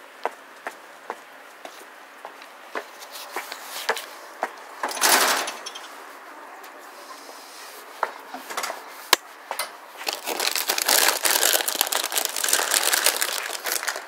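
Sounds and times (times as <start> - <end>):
rustling and crinkling: 1.5 - 4.7, 9.9 - 14.0.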